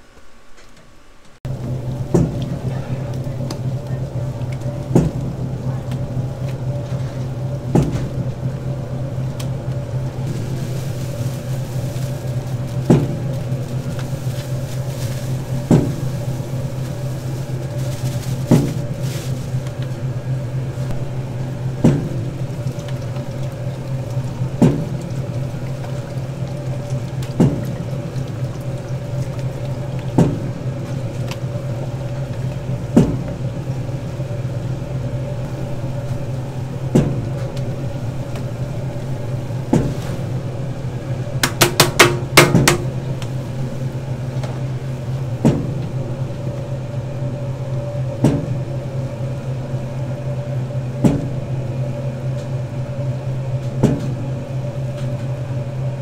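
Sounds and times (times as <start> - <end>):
mixer paddle knocking: 1.5 - 11.1, 11.7 - 19.0, 20.8 - 34.3, 35.2 - 38.6, 41.3 - 43.4.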